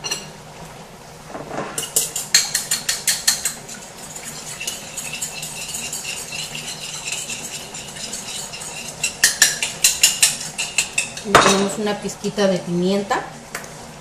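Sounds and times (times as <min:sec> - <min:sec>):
spoon clinking and scraping bowl: 0:00.0 - 0:00.3, 0:01.7 - 0:11.9.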